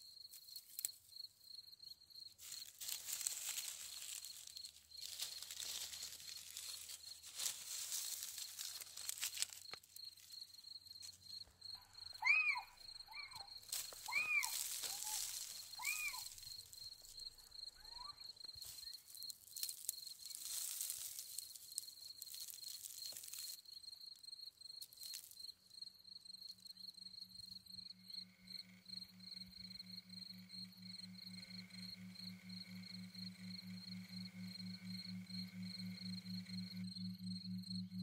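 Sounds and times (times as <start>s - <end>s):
high insect trill: 0.0s - 38.0s
short arching chirp calls: 11.9s - 16.7s
low pulsing hum: 26.9s - 38.0s.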